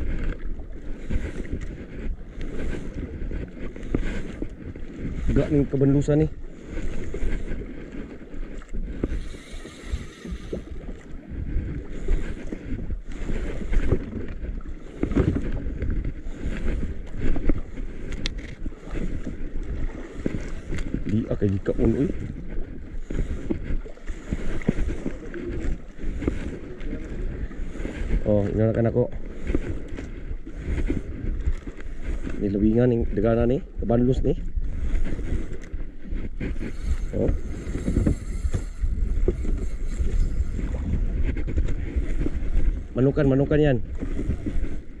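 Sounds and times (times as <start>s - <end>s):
waves and moving water: 0.0s - 45.0s
wind buffeting microphone: 0.0s - 45.0s.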